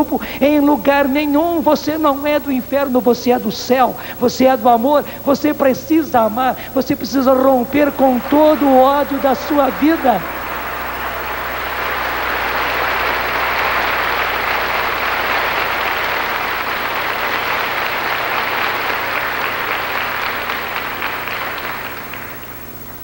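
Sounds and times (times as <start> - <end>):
congregation applauding: 7.3 - 23.0.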